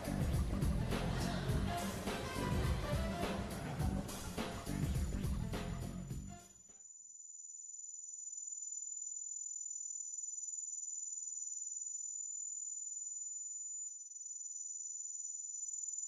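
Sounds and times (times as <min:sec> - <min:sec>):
music: 0:00.0 - 0:06.6.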